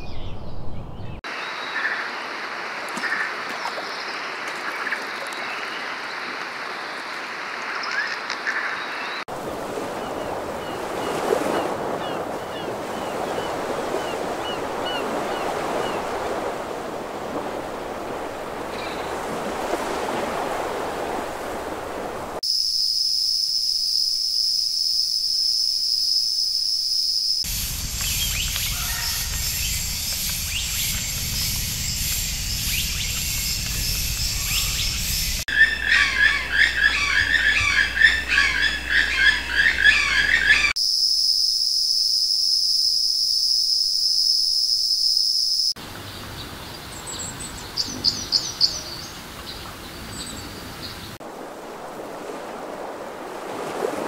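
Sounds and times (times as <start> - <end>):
rushing wash of surf or wind: 9.3 - 22.4, 50.0 - 54.0
bird chirps: 28.0 - 40.8.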